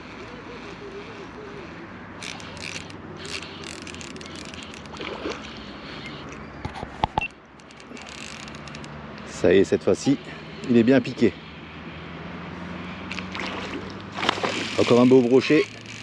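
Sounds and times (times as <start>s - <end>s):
fishing reel whirring and clicking: 0.1s - 6.5s, 7.5s - 10.8s, 13.0s - 16.0s.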